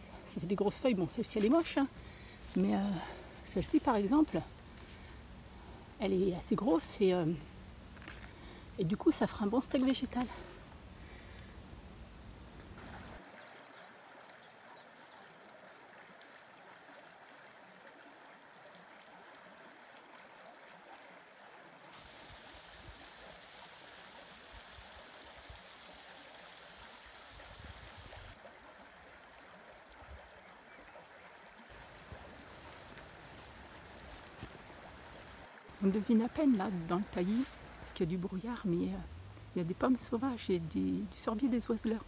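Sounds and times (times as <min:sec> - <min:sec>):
faint steady hiss: 0:00.0 - 0:14.4, 0:21.9 - 0:28.4, 0:31.7 - 0:42.0
waterfall trickling and splashing: 0:12.8 - 0:38.0.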